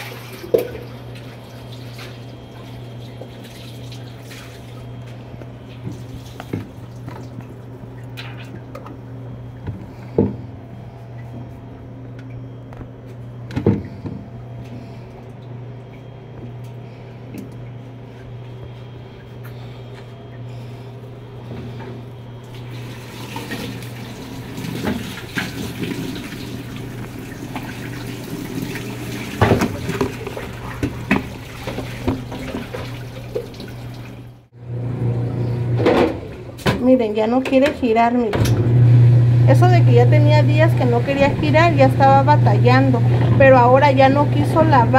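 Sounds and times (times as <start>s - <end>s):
water rushing as it drains: 0.0s - 4.9s, 22.5s - 34.5s, 40.7s - 43.6s
washing machine motor hum: 0.0s - 44.9s.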